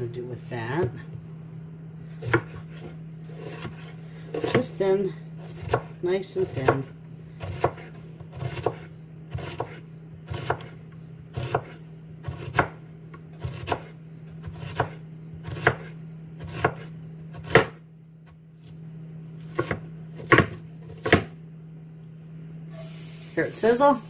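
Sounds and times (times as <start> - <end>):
steady low hum: 0.0 - 24.0
knife chopping on wooden board: 2.2 - 4.8, 5.4 - 12.8, 13.4 - 17.8, 19.5 - 21.3.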